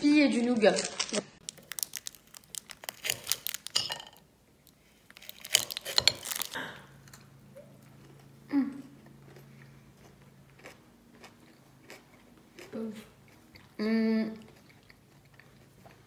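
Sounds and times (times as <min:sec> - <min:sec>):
crunching chocolate bar: 0:00.6 - 0:03.9, 0:04.6 - 0:06.6
chewing: 0:01.1 - 0:03.8, 0:05.0 - 0:16.0
person humming mm: 0:13.8 - 0:14.4.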